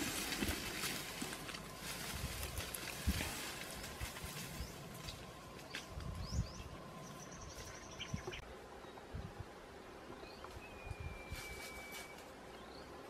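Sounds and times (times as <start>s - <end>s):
birds chirping: 2.4s - 13.0s.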